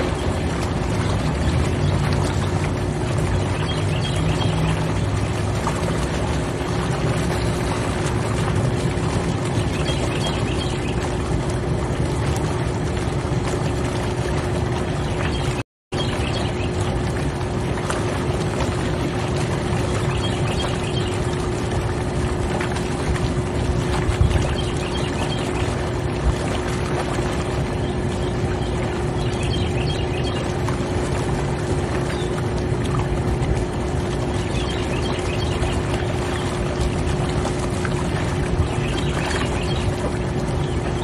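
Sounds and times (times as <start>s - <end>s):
motor hum: 0.0s - 41.0s
water churning and bubbling: 0.0s - 41.0s.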